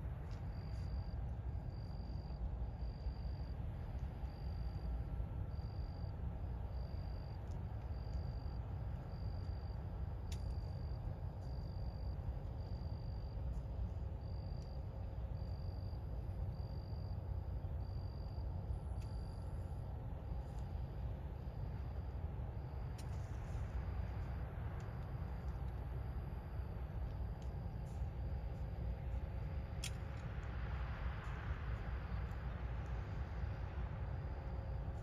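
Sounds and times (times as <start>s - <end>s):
steady low rumble: 0.0s - 35.0s
faint click: 10.2s - 10.7s.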